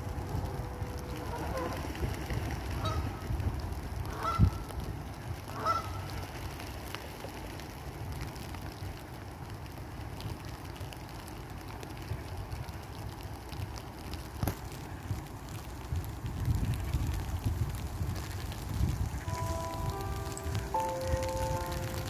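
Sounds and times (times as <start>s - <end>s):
steady low rumble: 0.0s - 5.5s
waterbird calls: 0.8s - 2.1s, 2.8s - 3.2s, 4.1s - 4.6s, 5.5s - 6.2s.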